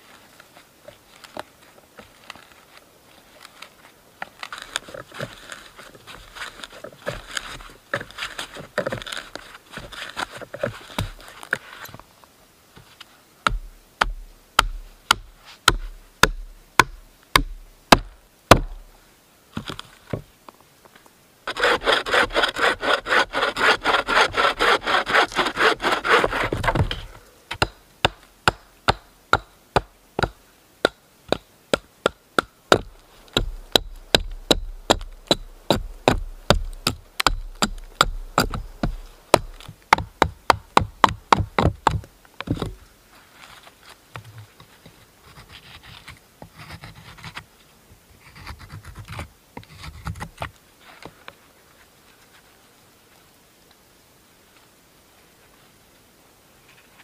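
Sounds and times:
hand saw cutting wood: 0:21.5 - 0:27.1.

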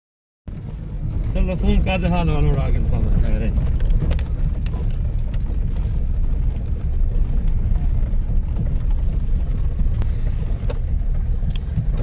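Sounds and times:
car rumbling over dirt road: 0:00.5 - 0:12.0.

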